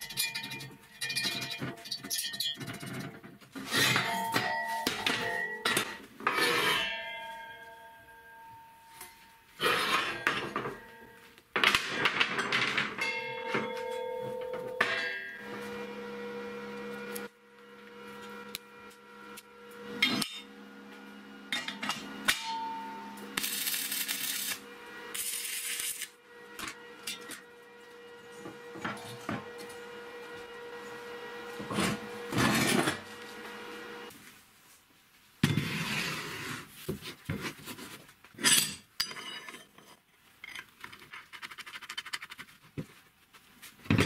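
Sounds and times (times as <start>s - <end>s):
steel parts clanking on metal frame: 0.0s - 7.7s, 21.5s - 23.6s
welding crackle: 23.3s - 26.2s.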